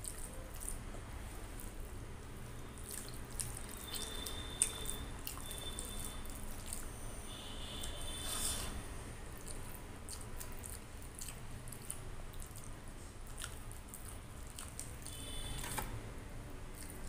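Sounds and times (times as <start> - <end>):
fingers squelching wet food: 0.0 - 0.8, 2.4 - 6.9, 9.4 - 15.2.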